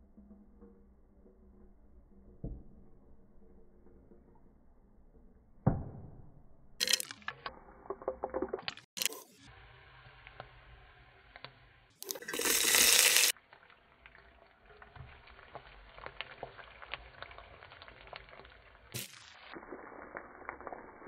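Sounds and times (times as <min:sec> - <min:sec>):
seeds crackling in hot oil: 0:06.8 - 0:21.0
onions sizzling with pops: 0:08.9 - 0:21.0
onions hissing in oil: 0:09.2 - 0:13.4.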